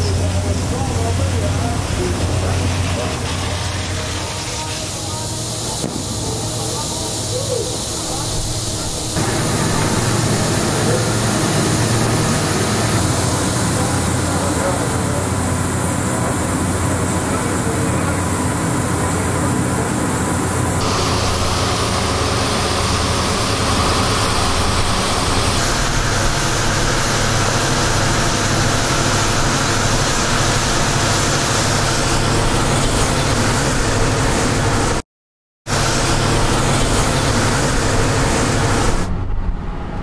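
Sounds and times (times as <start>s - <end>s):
loud mechanical drone: 0.0s - 35.0s, 35.7s - 40.0s.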